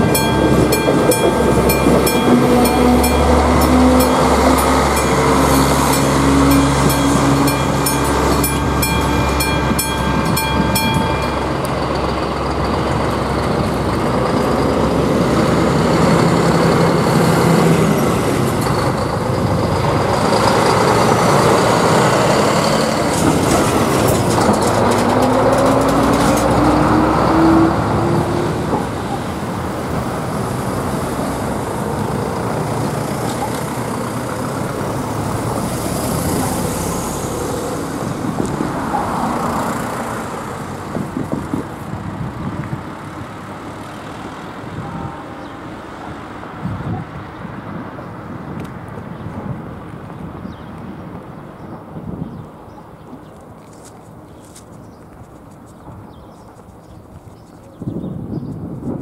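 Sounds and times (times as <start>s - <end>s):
crossing bell ringing: 0.0s - 40.8s
truck diesel engine revving: 0.0s - 42.2s
railcar passing: 0.0s - 54.6s.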